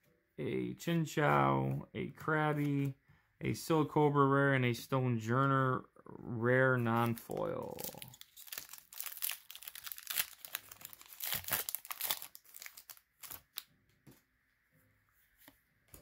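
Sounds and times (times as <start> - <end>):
foil wrapper tearing and crinkling: 7.0 - 13.7.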